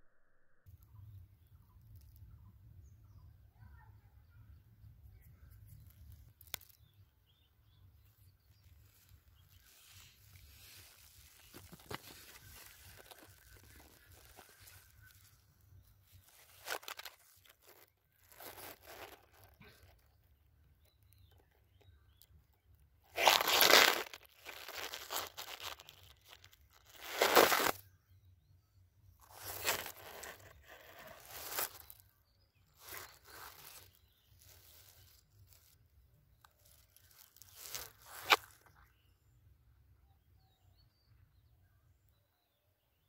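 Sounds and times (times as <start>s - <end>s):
rustling crunching noise: 5.5s - 27.8s, 29.2s - 32.1s, 32.7s - 38.9s.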